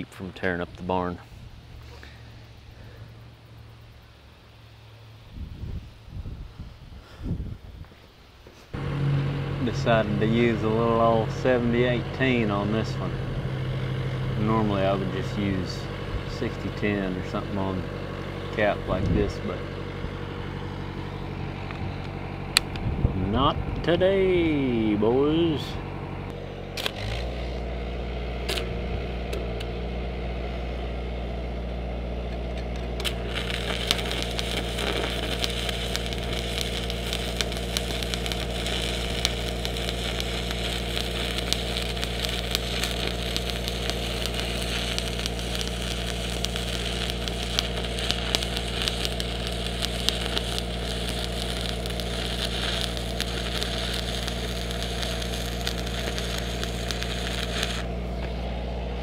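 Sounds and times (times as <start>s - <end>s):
welder engine humming: 0.0s - 5.9s, 8.4s - 59.0s
welding arc crackling: 8.7s - 22.8s, 24.3s - 30.0s, 32.2s - 58.5s.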